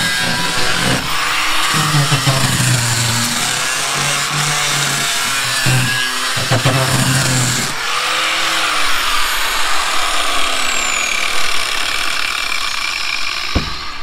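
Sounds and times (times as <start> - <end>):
sanding disc rasping on wood: 0.0 - 7.8
angle grinder motor whine: 0.0 - 14.0.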